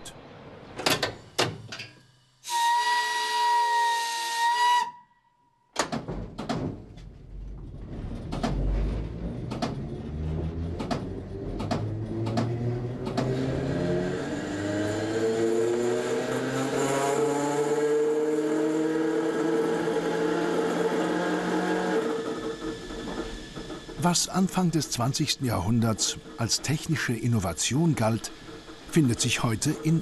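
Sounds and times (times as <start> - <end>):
train warning whistle: 2.4 - 5.4
train wheels clicking: 7.6 - 13.5, 21.5 - 30.0.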